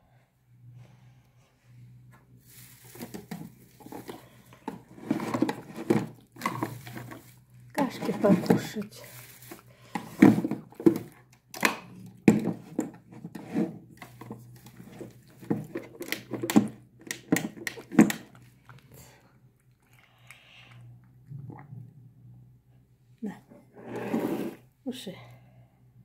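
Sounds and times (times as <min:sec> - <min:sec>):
cat chewing and lapping: 0:17.7 - 0:22.0.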